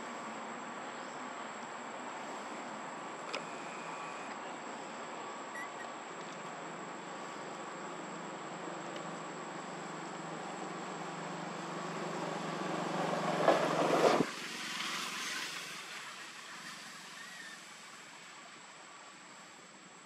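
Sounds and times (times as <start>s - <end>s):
faint hiss: 0.0s - 20.0s
passing motor vehicle engine: 8.8s - 18.6s.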